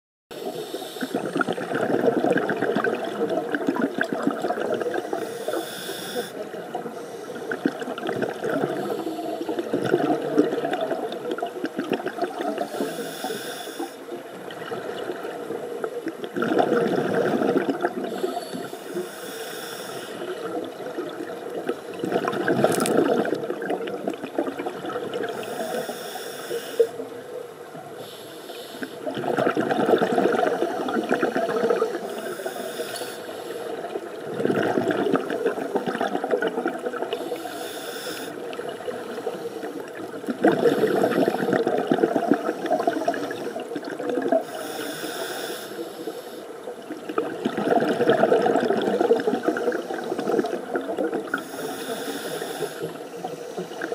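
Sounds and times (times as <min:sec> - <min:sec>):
diver breathing through regulator: 0:00.4 - 0:01.6, 0:04.9 - 0:06.4, 0:08.6 - 0:09.7, 0:12.6 - 0:14.0, 0:18.0 - 0:20.5, 0:25.3 - 0:27.0, 0:31.5 - 0:33.9, 0:37.1 - 0:38.4, 0:40.5 - 0:43.6, 0:44.4 - 0:46.6, 0:51.3 - 0:53.9
exhaled bubbles rushing: 0:01.2 - 0:05.2, 0:06.5 - 0:12.8, 0:14.2 - 0:18.2, 0:20.2 - 0:25.5, 0:29.0 - 0:32.1, 0:33.8 - 0:37.2, 0:38.4 - 0:44.5, 0:46.7 - 0:51.4.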